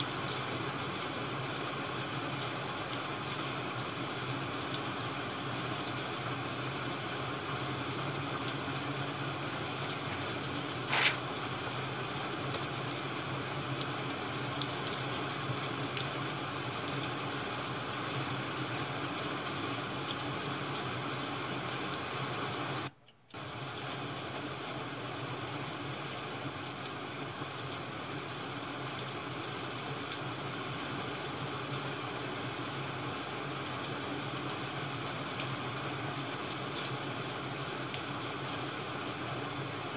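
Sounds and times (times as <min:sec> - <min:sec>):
rain rushing: 0:00.0 - 0:22.8
fire crackling: 0:08.3 - 0:11.6.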